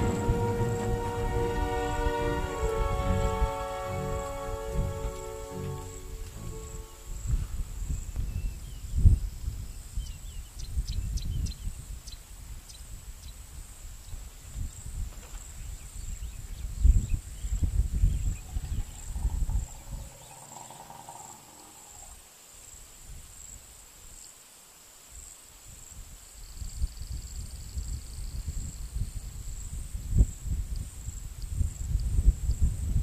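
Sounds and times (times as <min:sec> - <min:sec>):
high insect whine: 0:00.0 - 0:08.5, 0:17.9 - 0:23.6
gusty low rumbling: 0:00.0 - 0:09.5, 0:16.8 - 0:22.2
pitched animal call: 0:18.4 - 0:22.2.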